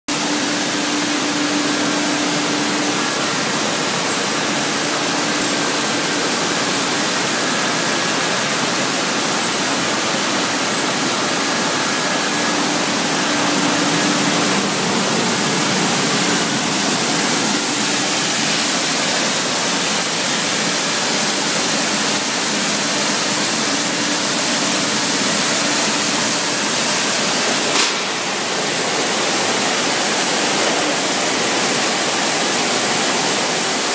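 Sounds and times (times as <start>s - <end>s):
wash water spraying: 0.1s - 33.9s
brief knock: 27.7s - 28.2s.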